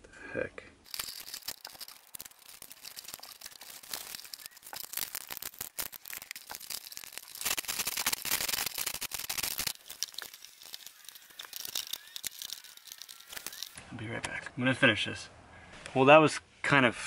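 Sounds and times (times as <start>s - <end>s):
plastic fittings crinkling and rustling: 0.8s - 13.8s
small plastic clicks: 0.9s - 13.8s.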